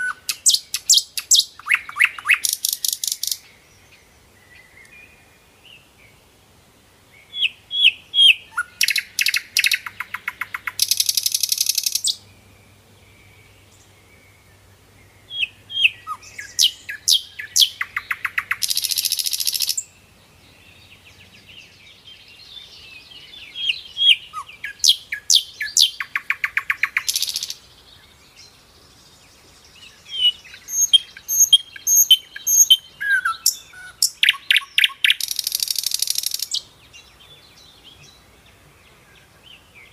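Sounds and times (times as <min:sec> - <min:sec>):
bird chirping and trilling: 0:00.0 - 0:05.1, 0:07.3 - 0:12.3, 0:15.3 - 0:20.0, 0:21.7 - 0:27.6, 0:29.8 - 0:38.2.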